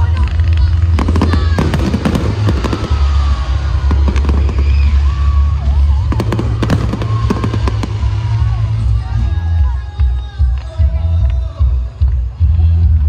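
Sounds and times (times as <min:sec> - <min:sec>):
fireworks bangs and crackling: 0:00.0 - 0:13.0
music playing: 0:00.0 - 0:13.0.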